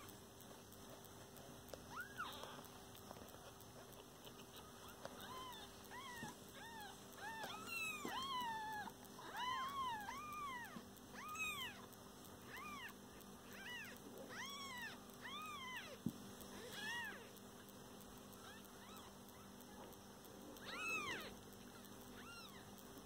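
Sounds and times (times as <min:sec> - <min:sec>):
kittens mewing: 0:03.9 - 0:17.4, 0:20.6 - 0:22.7.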